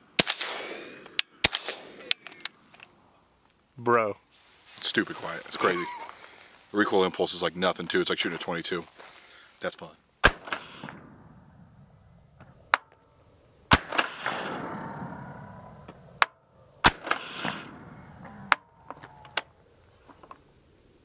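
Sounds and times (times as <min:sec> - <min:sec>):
suppressed gunshots: 0:00.1 - 0:02.2, 0:10.2 - 0:11.8, 0:13.7 - 0:15.1, 0:16.0 - 0:17.9.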